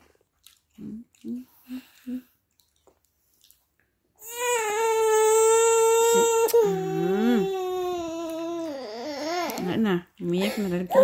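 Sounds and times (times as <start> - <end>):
soft vocal sounds: 0.7 - 2.6
toddler wailing: 4.2 - 9.6.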